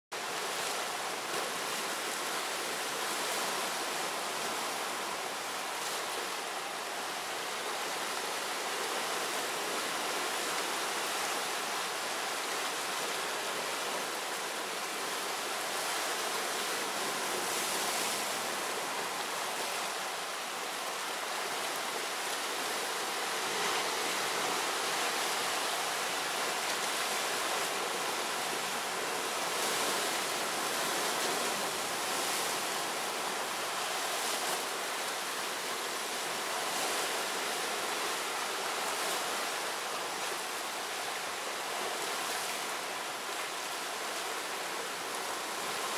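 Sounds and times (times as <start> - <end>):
sea waves breaking on rocks: 20.8 - 34.6.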